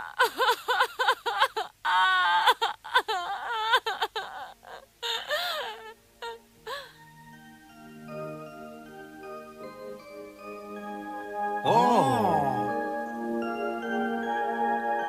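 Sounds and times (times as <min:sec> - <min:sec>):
cartoon character crying: 0:00.0 - 0:05.8, 0:11.7 - 0:12.8
soft music: 0:03.1 - 0:15.0.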